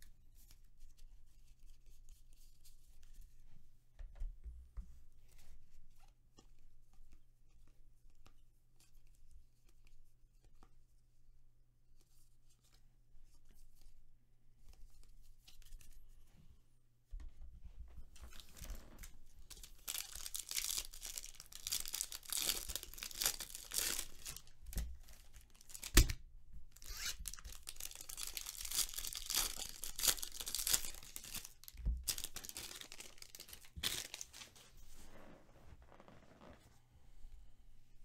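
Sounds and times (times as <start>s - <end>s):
wrappers tearing and crinkling: 18.3s - 26.1s, 26.8s - 34.6s.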